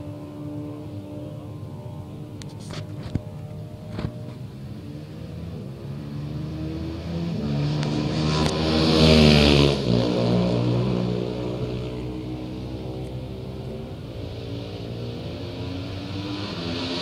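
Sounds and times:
racing motorcycle passing: 0:00.0 - 0:17.0.

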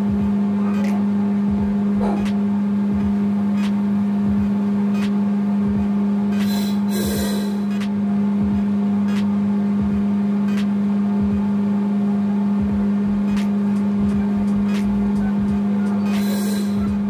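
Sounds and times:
machinery humming: 0:00.0 - 0:17.0.

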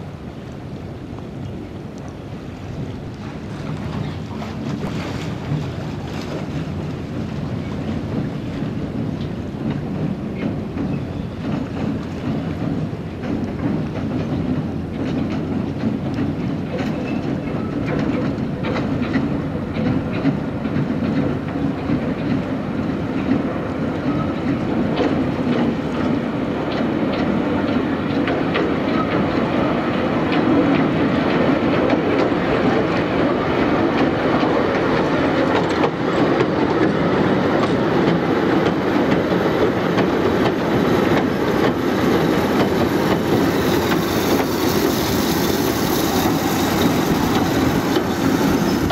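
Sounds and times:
train running rumble: 0:00.0 - 0:48.9
train wheels clicking over rail joints: 0:03.0 - 0:48.9.

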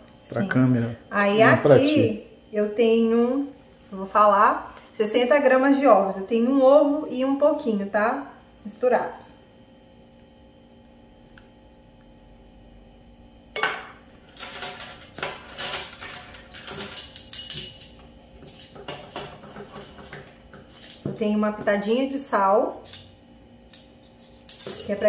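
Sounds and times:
measuring spoons and cups clinking: 0:14.4 - 0:21.7, 0:22.7 - 0:25.0.

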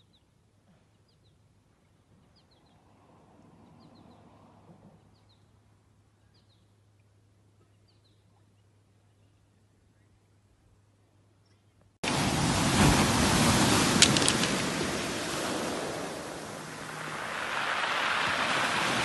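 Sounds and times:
waves washing over pebbles: 0:12.0 - 0:19.0
sharp clicks: 0:14.0 - 0:14.6.

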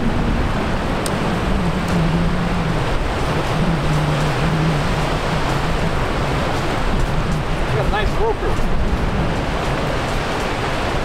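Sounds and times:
low droning hum: 0:00.0 - 0:07.9
surf rushing: 0:00.0 - 0:11.0
wind: 0:00.0 - 0:11.0.

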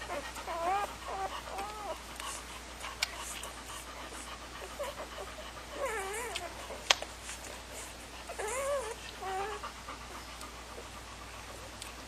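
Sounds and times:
puppies squealing: 0:00.0 - 0:02.0, 0:04.6 - 0:06.9, 0:08.3 - 0:09.7.

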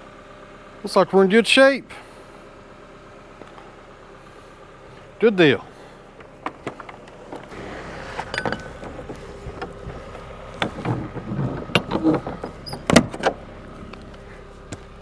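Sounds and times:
metal doors clicking and latching: 0:07.6 - 0:09.8, 0:10.6 - 0:13.4.

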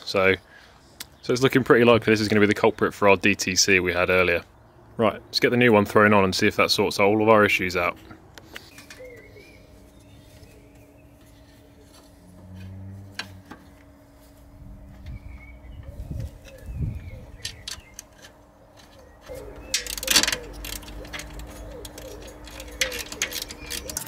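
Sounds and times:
faint birdsong: 0:00.0 - 0:24.0
rattle of parts: 0:17.4 - 0:24.0.

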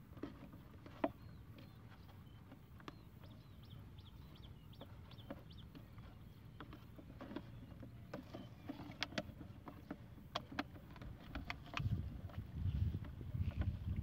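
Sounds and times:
wind rumble on microphone: 0:11.0 - 0:14.0.

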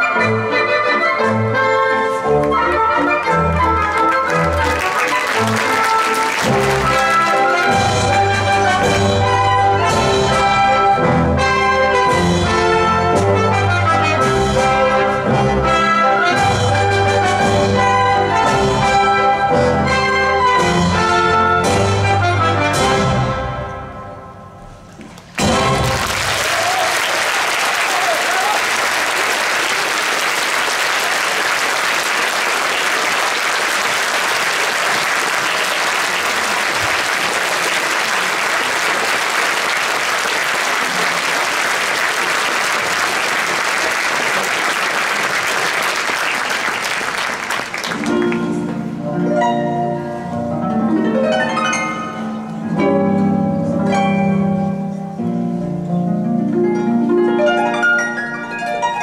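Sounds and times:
audience applauding: 0:02.5 - 0:09.0, 0:25.1 - 0:48.7.

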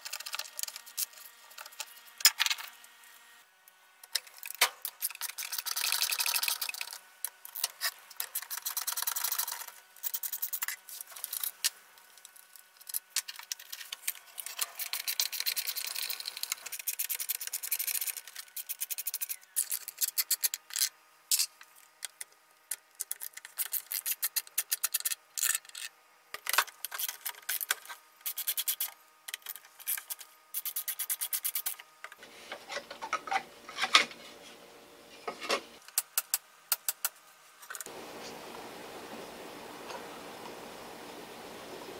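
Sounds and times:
screwdriver clicking and scraping metal: 0:12.8 - 0:34.2.

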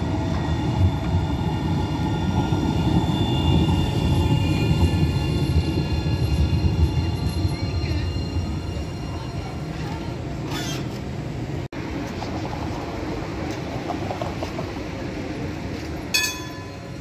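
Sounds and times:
tram rumbling on track: 0:00.0 - 0:17.0
high squeal: 0:00.4 - 0:11.0.

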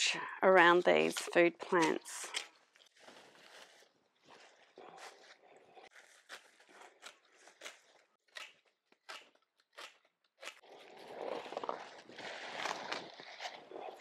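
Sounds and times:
secateurs snipping stems: 0:00.8 - 0:02.6, 0:06.1 - 0:10.6.

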